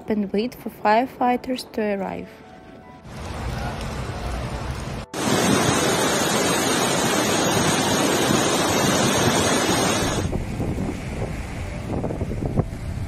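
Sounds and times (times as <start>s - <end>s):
floodwater rushing: 3.1s - 13.0s
wind buffeting microphone: 3.1s - 13.0s.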